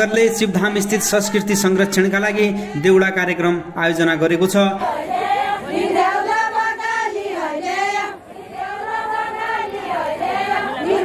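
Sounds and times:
women singing folk song: 0:04.8 - 0:11.0.

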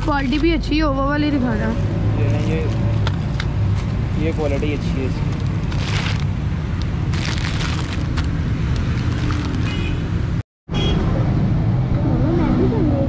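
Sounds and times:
plastic packaging crinkling: 0:05.2 - 0:06.3, 0:07.1 - 0:09.8.

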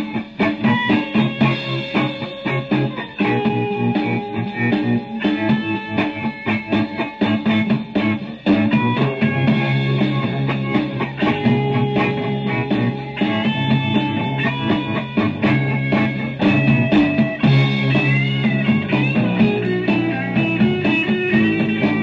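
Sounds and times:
bass guitar: 0:00.0 - 0:22.0
drums keeping a steady beat: 0:00.0 - 0:22.0
electric guitar: 0:00.0 - 0:22.0.

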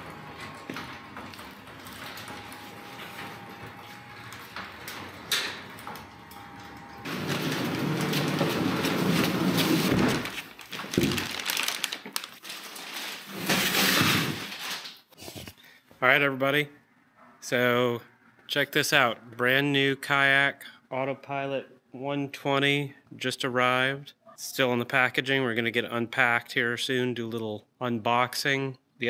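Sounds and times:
plastic wrap rustling: 0:06.4 - 0:15.1.

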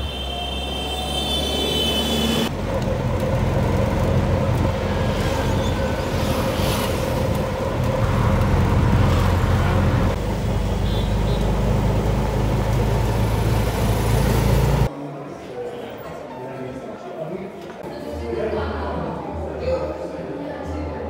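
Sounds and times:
road and traffic noise: 0:00.0 - 0:15.0.

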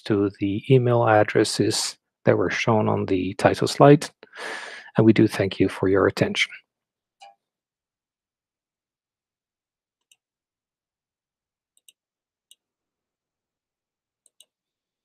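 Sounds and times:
computer mouse clicks: 0:14.2 - 0:14.5.

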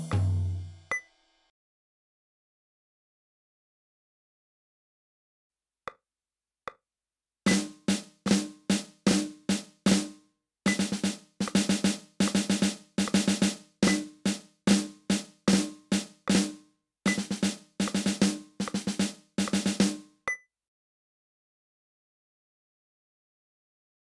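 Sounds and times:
electronic snare drum flams: 0:07.5 - 0:10.1, 0:10.7 - 0:20.0.

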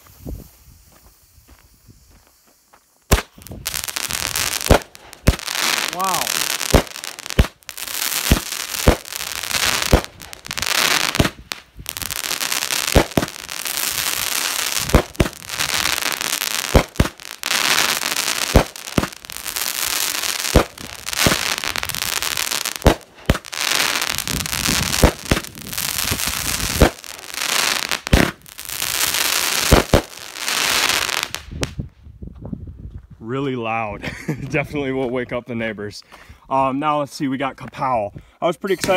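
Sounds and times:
firework hissing and crackling: 0:00.0 - 0:31.8
firework launch thumps: 0:03.1 - 0:05.5, 0:08.2 - 0:12.2, 0:14.8 - 0:16.0, 0:16.7 - 0:17.2, 0:24.1 - 0:27.0.

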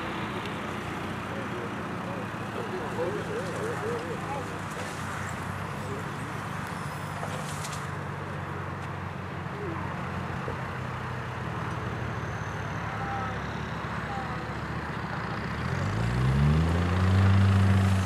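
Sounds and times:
car engine revving: 0:15.5 - 0:18.0.

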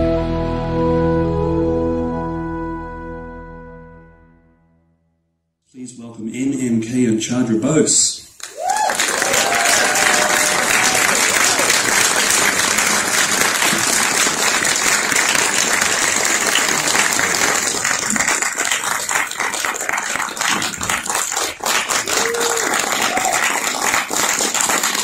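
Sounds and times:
audience applauding: 0:08.4 - 0:25.0.

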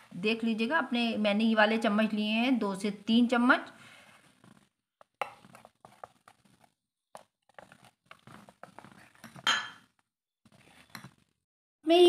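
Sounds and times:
metal spoon stirring in bowl: 0:05.1 - 0:09.9, 0:10.5 - 0:11.2.

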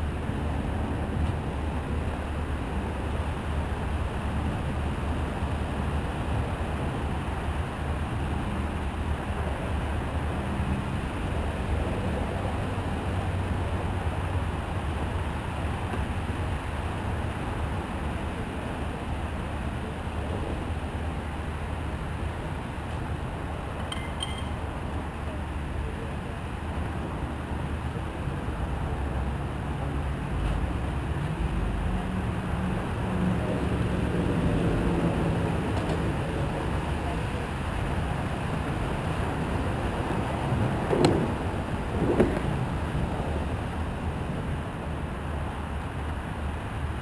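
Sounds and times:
low outdoor rumble: 0:00.0 - 0:47.0
crowbar metallic clinks: 0:23.8 - 0:24.6.

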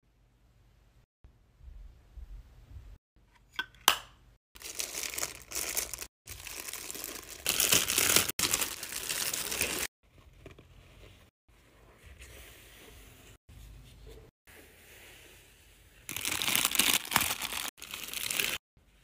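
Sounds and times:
plastic packaging crinkling: 0:04.6 - 0:09.9, 0:16.1 - 0:18.6.

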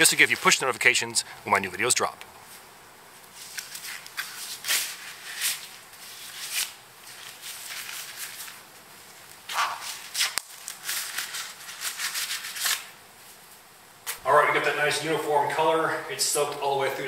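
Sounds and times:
disposable gloves rustling: 0:00.0 - 0:14.2
plastic bag crinkling: 0:09.4 - 0:12.9.

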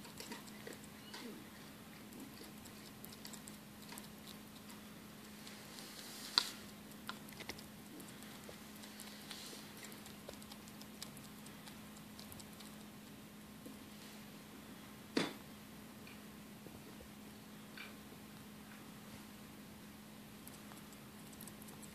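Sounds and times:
faint steady hum: 0:00.0 - 0:21.9
bat chewing clicks: 0:02.0 - 0:04.8, 0:06.4 - 0:13.2, 0:20.4 - 0:21.9.

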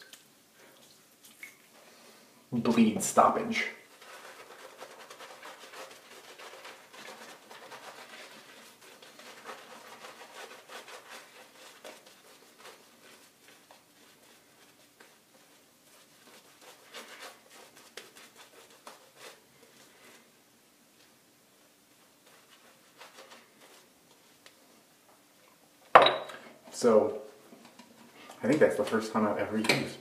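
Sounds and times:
shaving brush lathering on face: 0:03.0 - 0:20.3, 0:22.0 - 0:24.6.

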